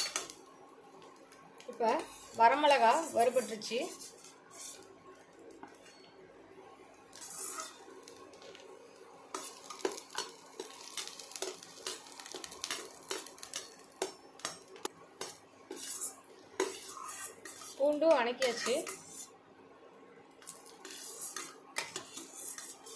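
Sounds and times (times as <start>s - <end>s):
metal skimmer scraping a pan: 7.2s - 7.8s, 15.7s - 19.3s.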